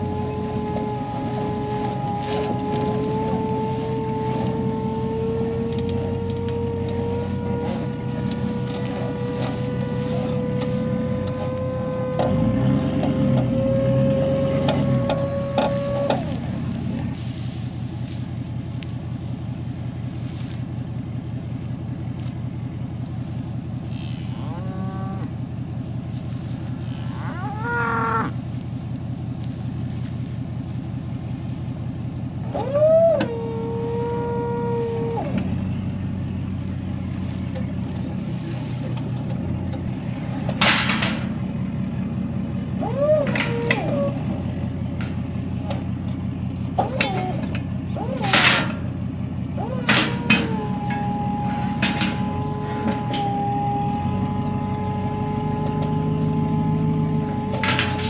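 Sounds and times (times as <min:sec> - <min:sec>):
loader engine running: 0:00.0 - 0:58.0
cattle mooing: 0:23.9 - 0:25.4, 0:26.8 - 0:28.4.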